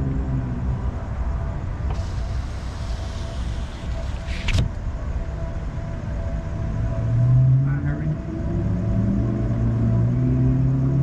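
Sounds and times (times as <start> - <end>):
car engine low rumble: 0.0 - 11.0
hiss: 1.9 - 4.6.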